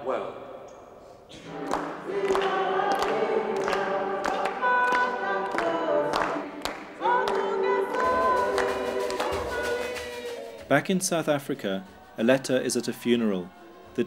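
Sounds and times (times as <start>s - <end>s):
congregation singing a hymn: 1.3s - 14.0s
people clapping along: 1.4s - 10.8s.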